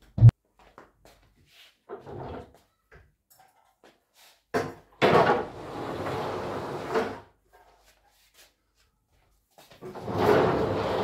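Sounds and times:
tables scraping on floor: 5.0 - 7.3, 9.8 - 11.0.

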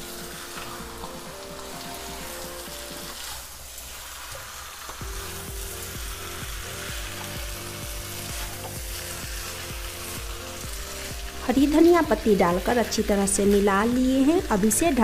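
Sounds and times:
background music with a beat: 0.0 - 3.2, 5.0 - 12.2
chicken sizzling in a pan: 0.0 - 15.0.

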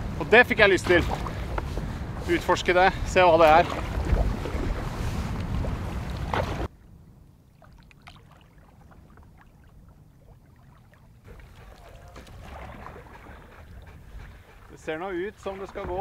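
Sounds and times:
wind rushing over microphone: 0.0 - 6.7
water splashes and drips: 3.4 - 6.8, 7.4 - 16.0.

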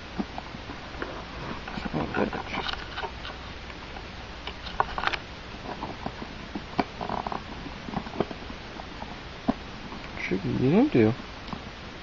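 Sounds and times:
small clicks taps and scrapes: 1.6 - 3.4, 4.5 - 8.4.

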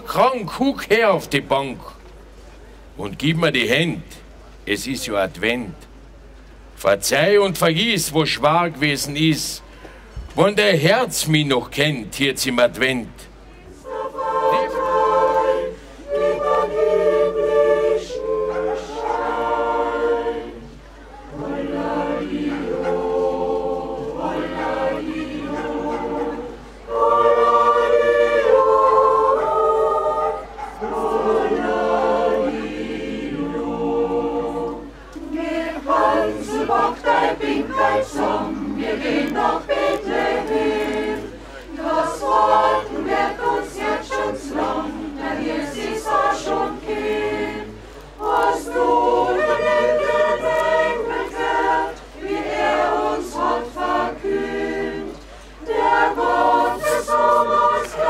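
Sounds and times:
mixed choir singing a cappella: 13.7 - 58.0.

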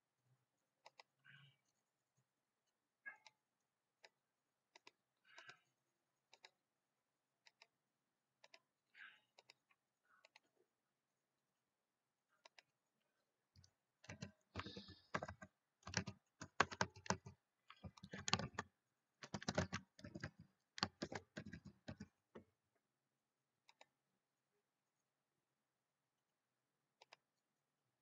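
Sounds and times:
computer keyboard typing: 13.6 - 22.2.

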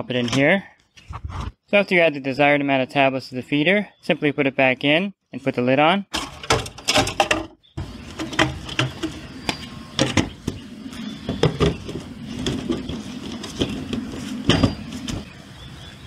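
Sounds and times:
steady low hum: 7.8 - 16.0.

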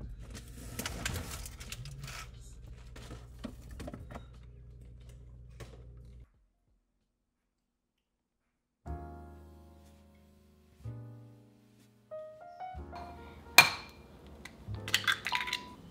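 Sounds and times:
items clattering in refrigerator: 0.0 - 6.2.

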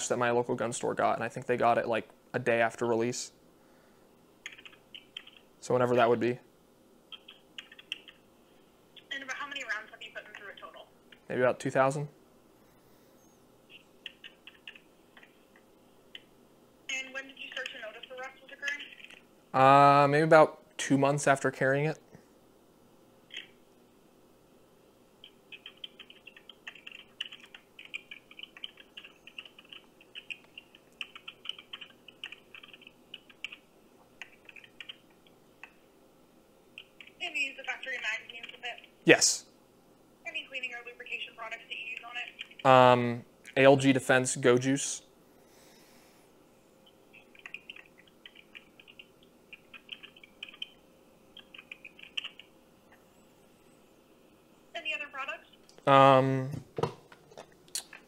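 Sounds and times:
keyboard typing through phone speaker: 4.4 - 5.5, 7.1 - 8.2, 13.7 - 15.4, 17.0 - 19.2, 25.2 - 33.6, 34.2 - 35.8, 36.8 - 38.9, 41.7 - 42.7, 47.1 - 50.8, 51.4 - 52.5.

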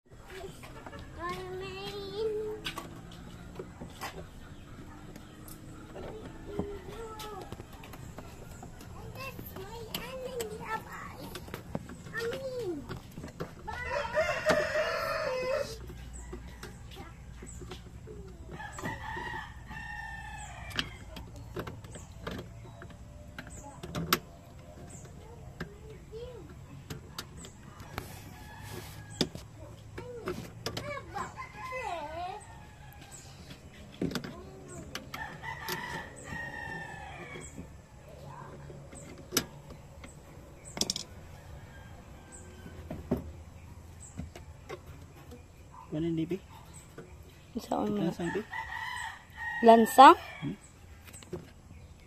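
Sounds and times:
rooster crowing: 13.8 - 15.8, 35.1 - 37.4, 48.1 - 50.6
small clicks and knocks: 38.5 - 41.2.

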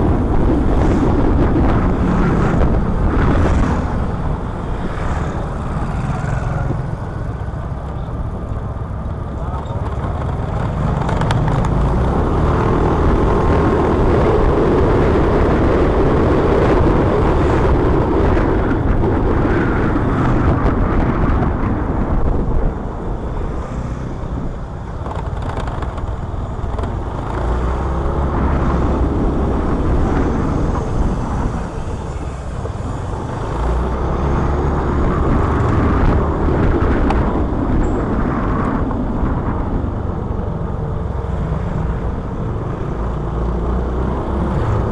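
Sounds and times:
motorcycle engine running: 0.0 - 16.5
road and wind noise: 0.0 - 44.9.

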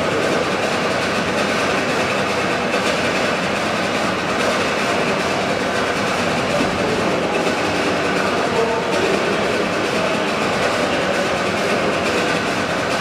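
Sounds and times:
steam engine running: 0.0 - 13.0.

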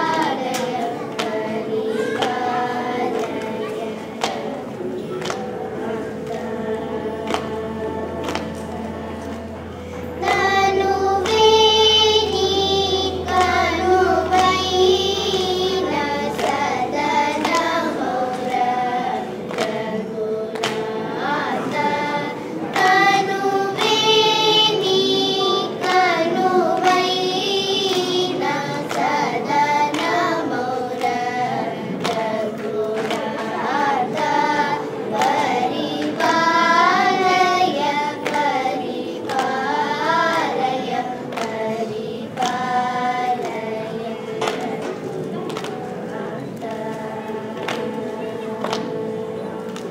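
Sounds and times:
girls singing together: 0.0 - 49.9
electronic tanpura drone: 6.6 - 18.9.

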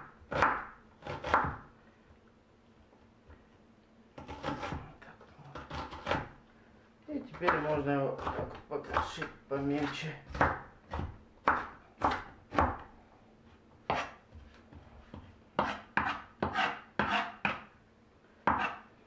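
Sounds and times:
knife chopping on wooden board: 0.0 - 1.7, 4.2 - 4.8, 5.5 - 6.4, 7.3 - 12.9, 13.9 - 14.2, 15.1 - 17.7, 18.4 - 18.9.

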